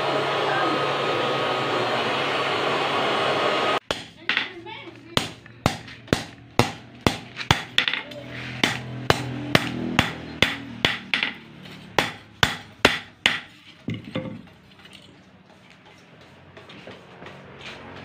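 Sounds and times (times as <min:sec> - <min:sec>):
hammer striking metal on anvil: 0:03.8 - 0:04.6, 0:05.2 - 0:14.4.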